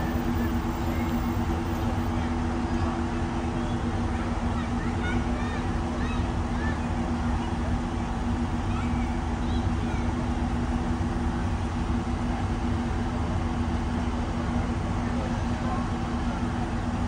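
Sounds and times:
vehicle engine humming: 0.0 - 17.0.

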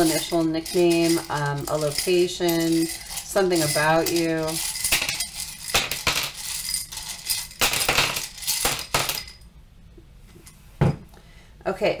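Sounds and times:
wooden tiles clattering in a cup: 0.0 - 9.4.

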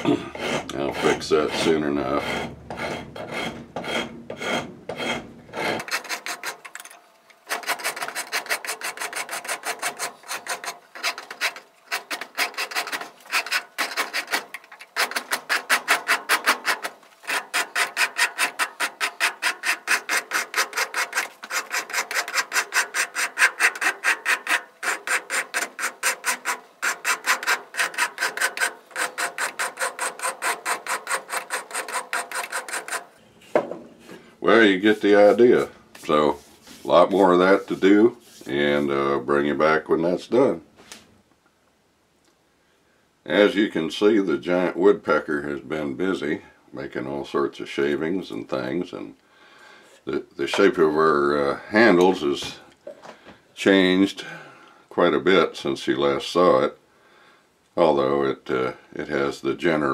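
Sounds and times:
rasp filing wood: 0.0 - 6.7, 7.5 - 33.1, 34.8 - 38.9.

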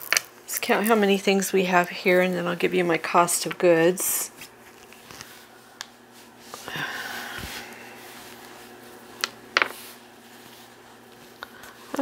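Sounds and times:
soft rustle of cloth: 7.2 - 12.0.

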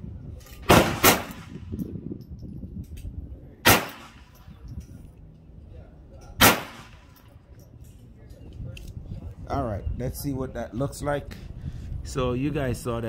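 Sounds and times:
pistol shots: 0.7 - 1.6, 3.6 - 4.4, 6.4 - 7.2.

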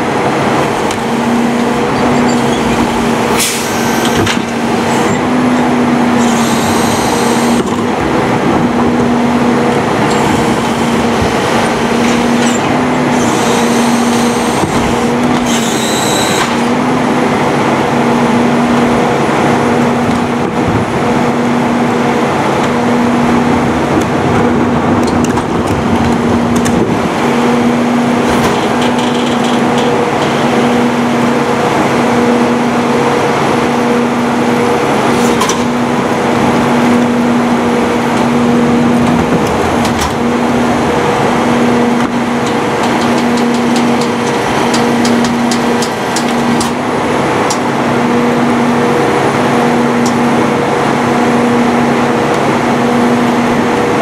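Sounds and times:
garbage truck engine running: 0.0 - 54.0
hydraulic packer hum: 0.0 - 54.0
metallic clanks of carts: 28.3 - 30.7.

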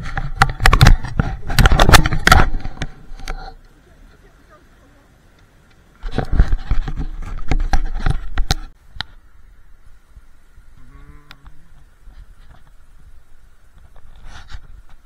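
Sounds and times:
camera handling knocks and scraping: 0.0 - 3.4, 6.0 - 8.8.

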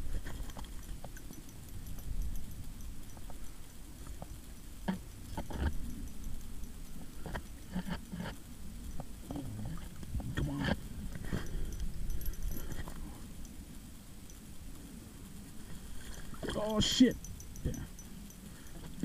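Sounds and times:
clicks and knocks of fishing line: 0.1 - 3.4.

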